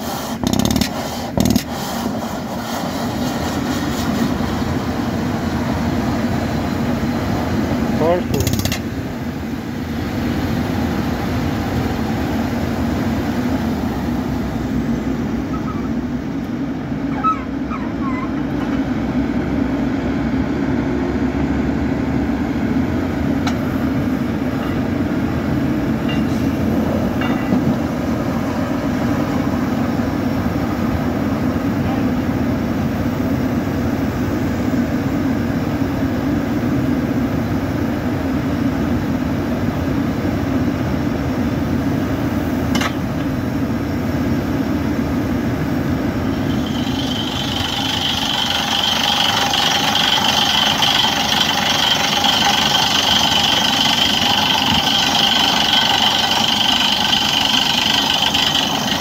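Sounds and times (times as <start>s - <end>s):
faint squeaks and clicks: 17.1s - 18.4s
drilling rig low drone: 45.3s - 59.0s.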